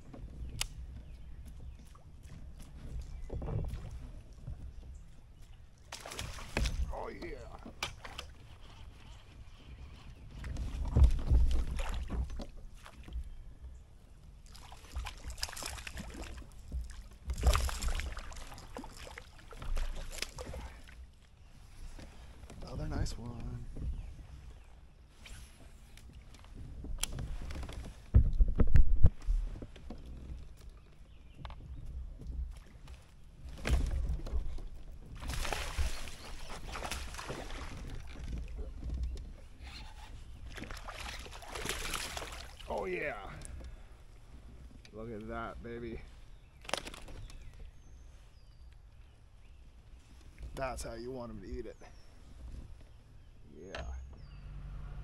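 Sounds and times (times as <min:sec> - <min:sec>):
fish splashing in water: 0:05.9 - 0:06.9, 0:14.5 - 0:20.8, 0:35.2 - 0:38.3, 0:40.5 - 0:42.8.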